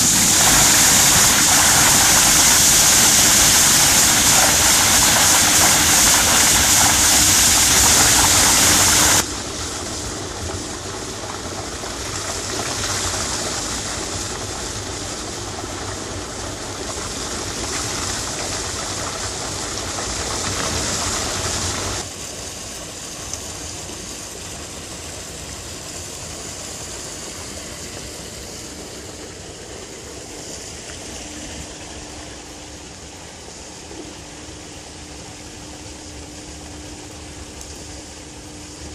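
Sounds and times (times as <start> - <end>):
machine running: 0.0 - 12.5
water rushing: 0.0 - 38.4.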